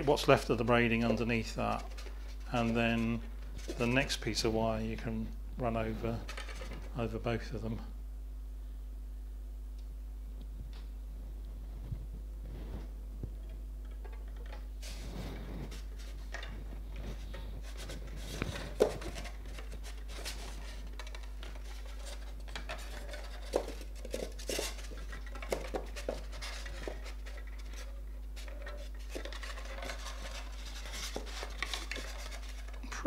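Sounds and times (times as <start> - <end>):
steady low hum: 0.0 - 33.0
wire scraping and clicking: 13.3 - 33.0.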